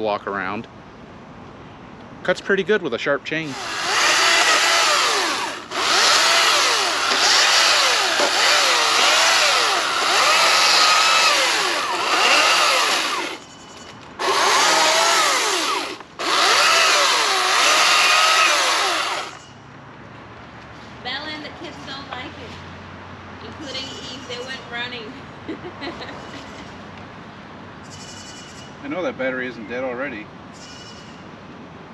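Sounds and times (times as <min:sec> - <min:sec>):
electric chainsaw cutting wood: 0:03.5 - 0:13.4, 0:14.2 - 0:19.4.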